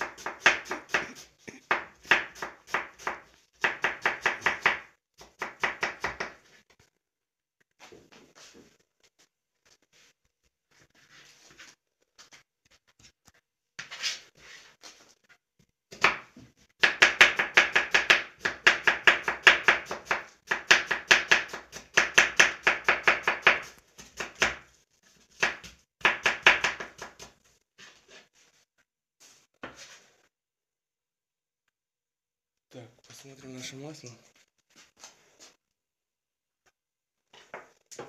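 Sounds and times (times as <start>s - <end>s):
knife chopping on plastic board: 0.0s - 6.4s, 15.9s - 24.6s, 25.4s - 27.4s.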